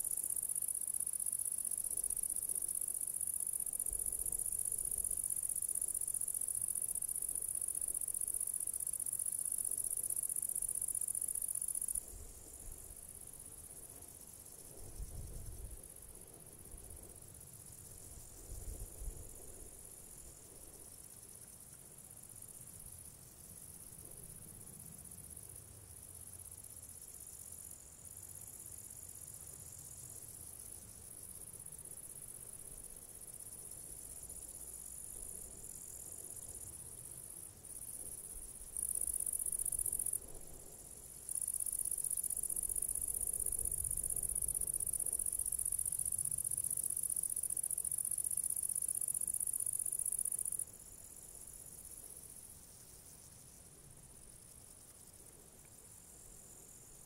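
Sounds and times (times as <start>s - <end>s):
lower insect buzz: 0.0s - 57.0s
crickets high buzz: 33.2s - 55.1s.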